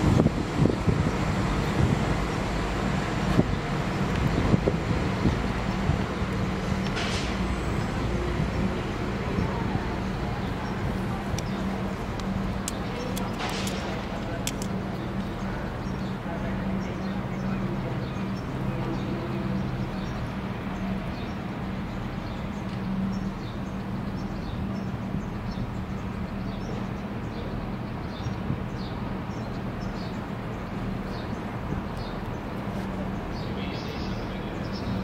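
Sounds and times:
diesel train engines humming: 0:00.0 - 0:35.0
small birds chirping: 0:07.8 - 0:35.0.

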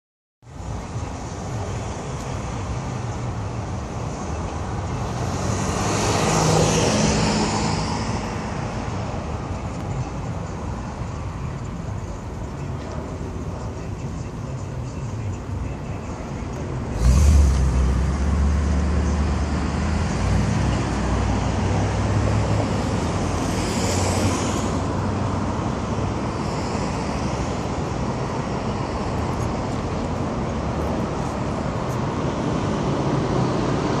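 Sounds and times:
street traffic noise: 0:00.4 - 0:34.0
car accelerating hard: 0:16.9 - 0:22.5.

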